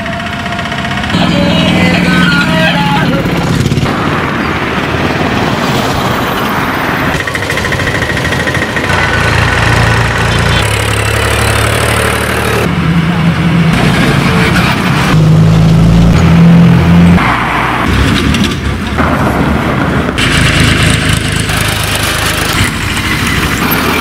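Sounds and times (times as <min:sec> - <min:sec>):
traffic engine hum: 0:00.0 - 0:24.0.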